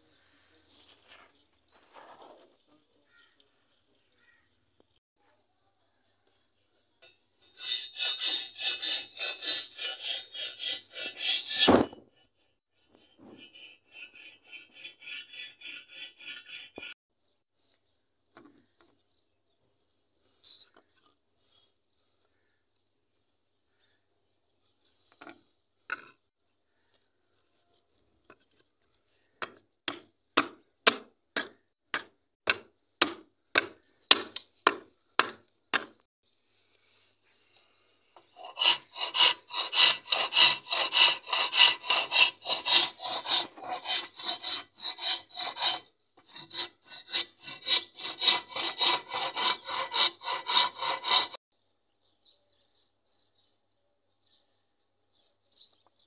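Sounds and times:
steel file rasping wood: 7.0s - 17.0s, 38.2s - 51.4s.

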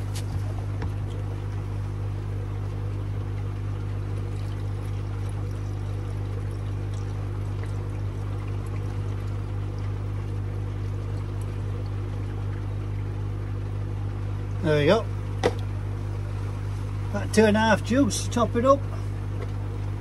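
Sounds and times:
low electrical hum: 0.0s - 20.0s
water pouring from a jug: 3.7s - 12.9s.

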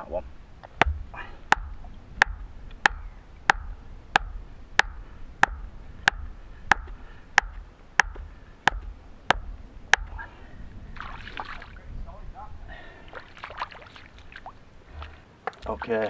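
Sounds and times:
stone knocking on wooden stake: 0.6s - 10.2s.

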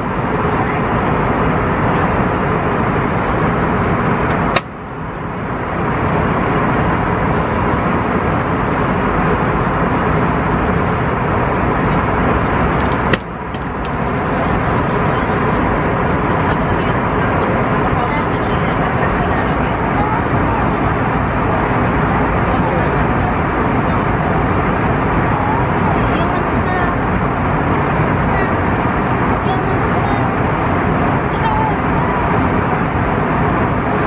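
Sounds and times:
sharp click: 4.5s - 4.8s.

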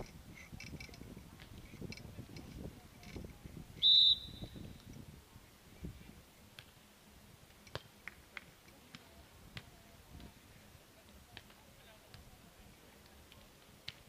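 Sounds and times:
referee whistle blast: 3.8s - 4.6s.

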